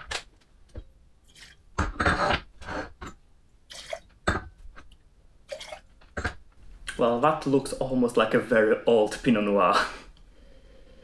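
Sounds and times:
liquid pouring into glass: 5.5s - 5.9s.

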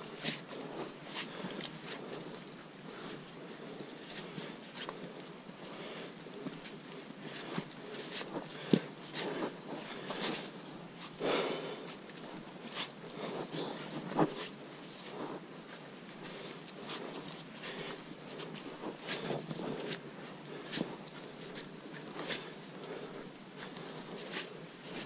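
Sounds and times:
footsteps on muddy trail: 0.0s - 25.0s
gear and vegetation rustling: 0.0s - 25.0s
scrape: 12.6s - 20.0s, 20.6s - 25.0s.

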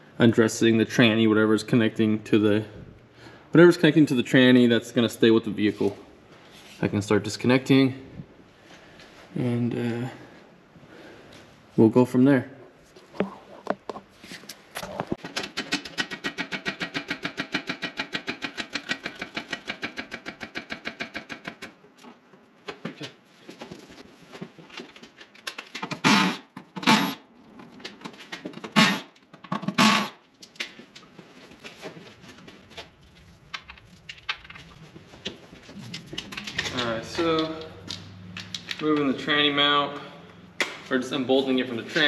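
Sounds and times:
power wrench bursts: 26.0s - 27.2s, 28.7s - 30.2s.

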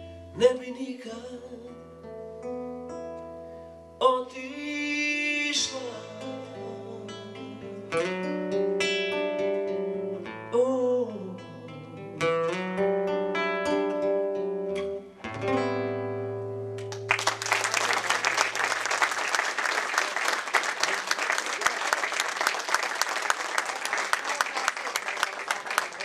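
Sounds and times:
fingerpicked acoustic guitar: 0.0s - 17.1s
man singing: 0.3s - 1.8s, 4.0s - 8.1s, 10.2s - 12.3s
audience applause: 16.9s - 26.0s.

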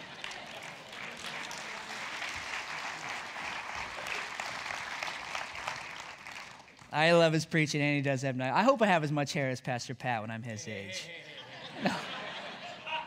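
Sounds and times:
congregation applauding: 0.0s - 7.0s.

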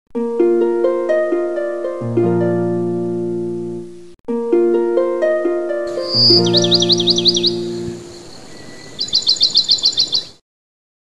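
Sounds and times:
plucked string music: 0.2s - 8.2s.

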